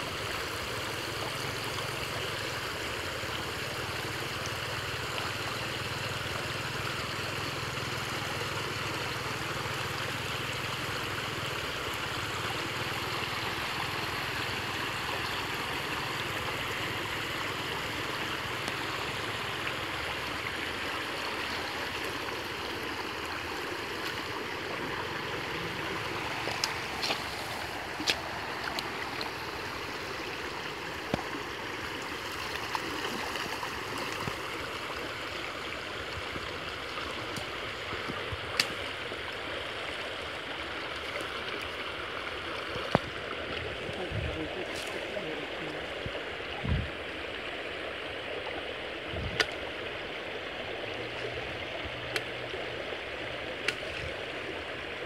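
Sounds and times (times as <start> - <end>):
creek water flowing fast: 0.0 - 55.0.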